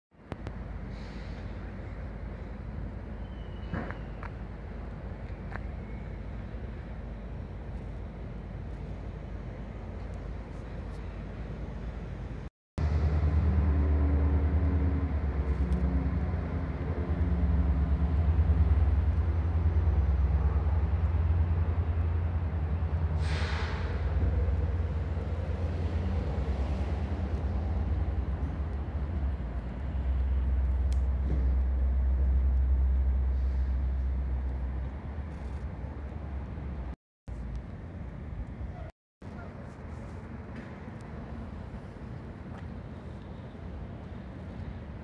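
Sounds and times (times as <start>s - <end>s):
short hiss: 0.9s - 1.5s, 23.2s - 24.0s.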